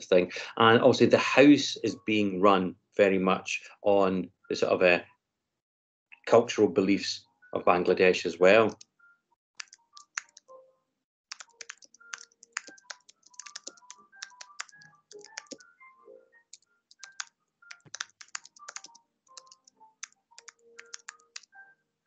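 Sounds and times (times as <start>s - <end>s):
typing on computer keyboard: 9.6s - 10.5s, 11.3s - 15.6s, 16.5s - 21.5s.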